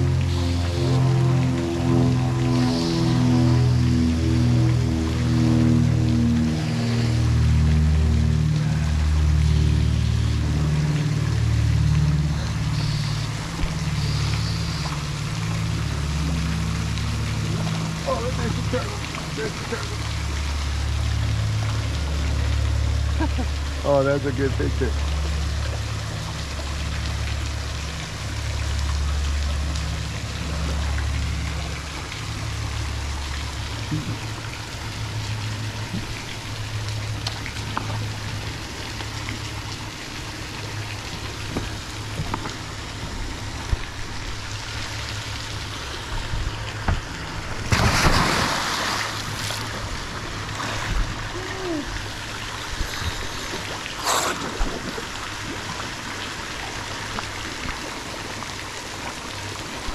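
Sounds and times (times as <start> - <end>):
low rumble: 0.0 - 55.8
water sloshing and trickling: 0.0 - 59.9
diver splashing into water: 47.6 - 49.8.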